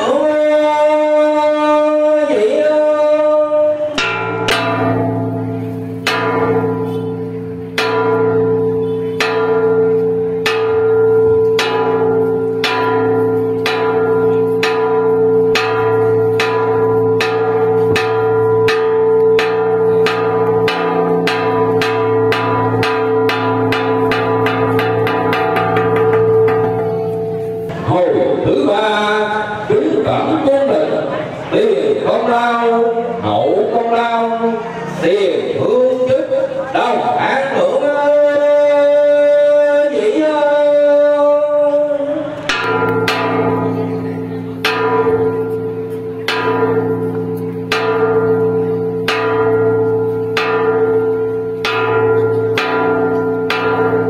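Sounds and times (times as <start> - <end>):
gong strikes ringing: 3.8 - 27.9, 42.4 - 54.0.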